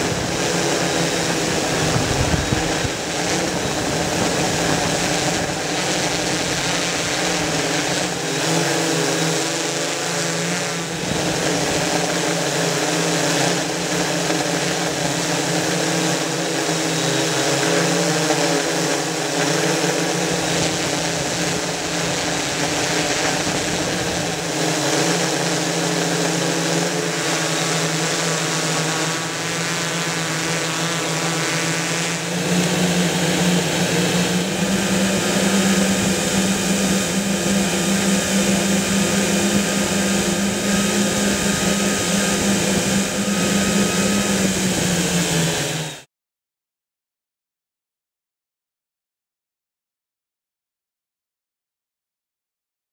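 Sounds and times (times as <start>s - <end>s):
drone motors and propellers buzzing: 0.0s - 46.1s.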